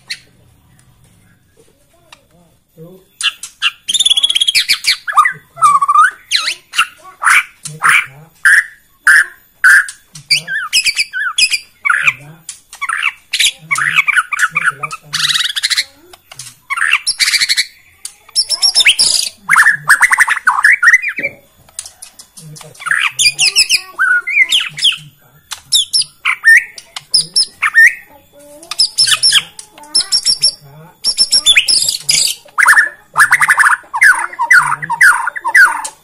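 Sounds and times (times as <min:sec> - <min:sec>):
bird singing loudly: 0:03.2 - 0:12.2, 0:18.4 - 0:21.3, 0:22.8 - 0:25.1, 0:28.7 - 0:36.0.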